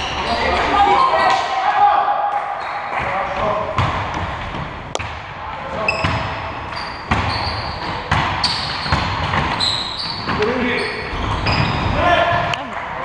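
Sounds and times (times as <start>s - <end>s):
basketball bouncing on court: 3.7s - 13.0s
shoes squeaking on floor: 5.8s - 12.6s.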